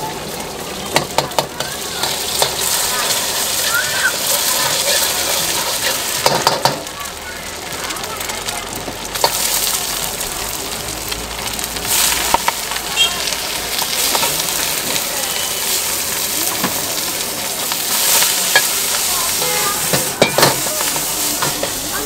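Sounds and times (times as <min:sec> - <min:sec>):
food sizzling in a wok: 0:00.0 - 0:22.0
metal ladle scraping a wok: 0:01.8 - 0:06.2, 0:15.3 - 0:22.0.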